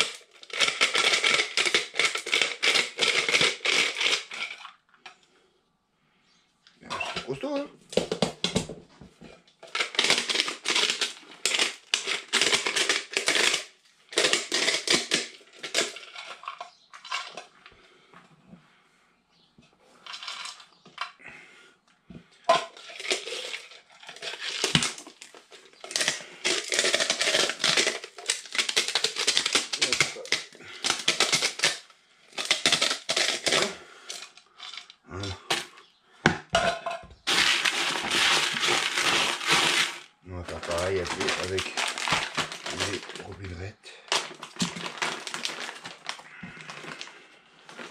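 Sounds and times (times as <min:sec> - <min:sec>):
hand stirring pellets in plastic bucket: 0:00.0 - 0:04.7, 0:09.7 - 0:17.3, 0:22.5 - 0:35.6, 0:37.2 - 0:47.9
pellets crushed in hand grinder: 0:00.0 - 0:04.8, 0:06.8 - 0:18.0, 0:20.0 - 0:21.4, 0:22.2 - 0:35.9, 0:37.2 - 0:47.9.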